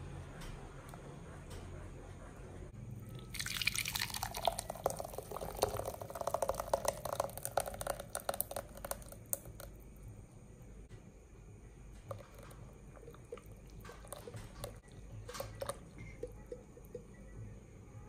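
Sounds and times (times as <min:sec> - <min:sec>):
thick puree plopping and splattering: 0:03.2 - 0:09.8.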